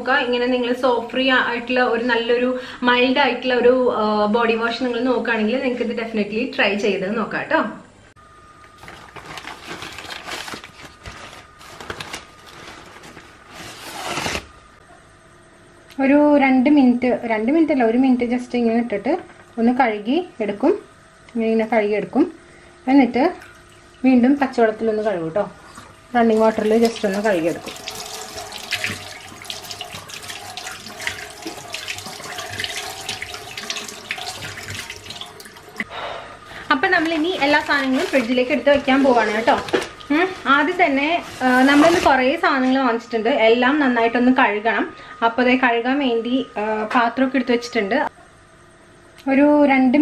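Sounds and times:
paper bags rustling: 8.8s - 14.6s, 36.5s - 42.4s
tap water splashing into sink: 26.6s - 35.8s.

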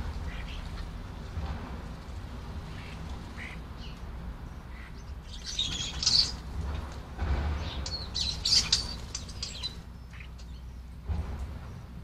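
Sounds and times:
starlings chirping and squawking: 0.0s - 1.0s, 2.5s - 11.0s
wing flutter: 5.3s - 10.4s.

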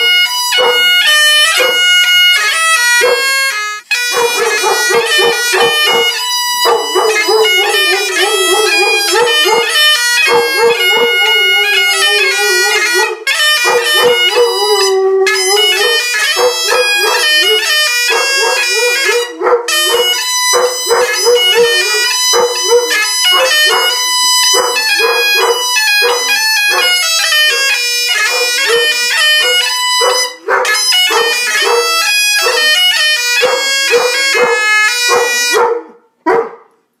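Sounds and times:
bagpipe music: 0.0s - 35.9s
dog barking: 0.6s - 0.8s, 1.6s - 1.8s, 3.0s - 3.2s, 4.2s - 11.6s, 12.9s - 14.6s, 15.7s - 26.9s, 28.3s - 28.8s, 30.0s - 32.6s, 33.4s - 36.8s
dog howling: 4.1s - 32.6s.

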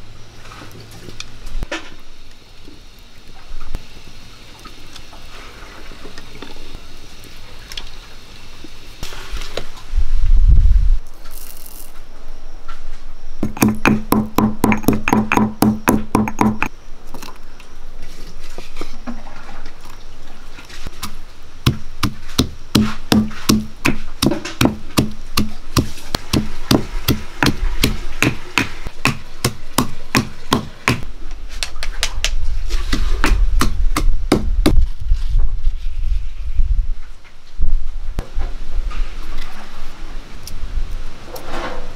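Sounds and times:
pestle pounding in stone mortar: 13.4s - 16.7s, 21.6s - 31.1s, 33.2s - 34.8s.

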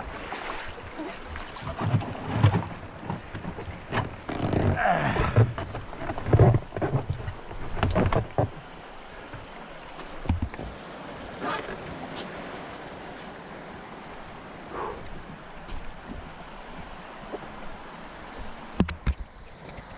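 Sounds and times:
rushing water: 0.0s - 19.9s
wind: 0.0s - 19.9s
kayak scraping against stones: 1.5s - 8.6s, 11.4s - 12.3s.

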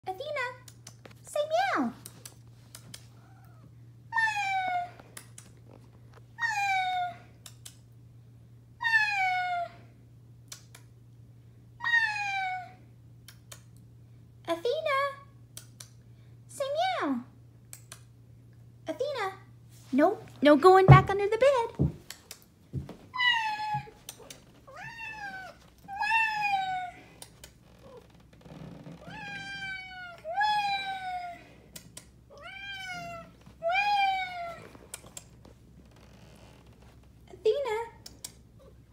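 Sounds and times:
cat meowing: 24.7s - 27.0s.

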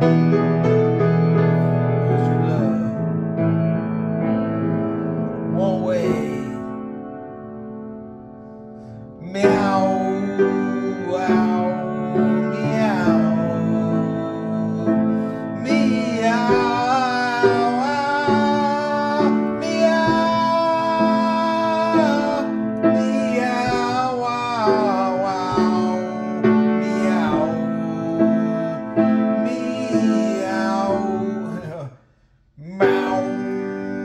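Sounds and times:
grand piano accompaniment: 0.0s - 32.0s, 32.6s - 34.0s
man singing long held notes: 1.5s - 3.2s, 5.5s - 6.8s, 9.2s - 32.0s, 32.6s - 34.0s.

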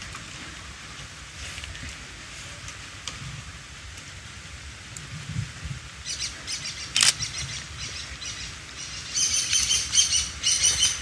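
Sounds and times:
songbird chirping: 6.0s - 11.0s.

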